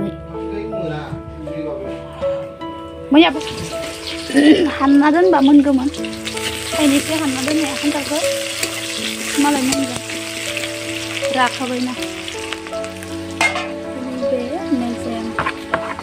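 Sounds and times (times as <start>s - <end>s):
vegetables sizzling in hot oil: 3.3s - 16.0s.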